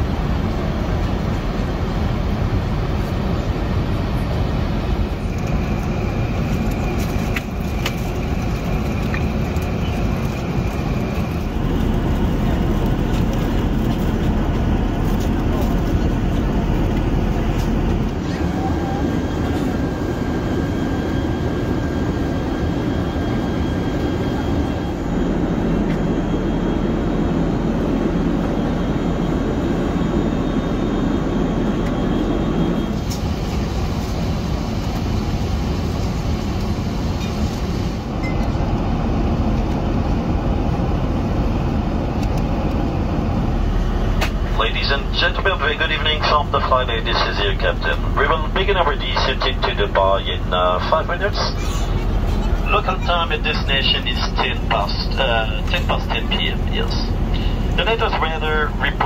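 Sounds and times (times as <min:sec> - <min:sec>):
airliner cabin engine rush: 0:00.0 - 0:59.0.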